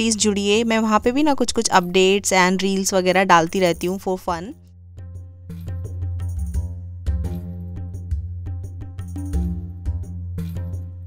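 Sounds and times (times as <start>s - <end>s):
film song with drum beat: 5.1s - 11.0s.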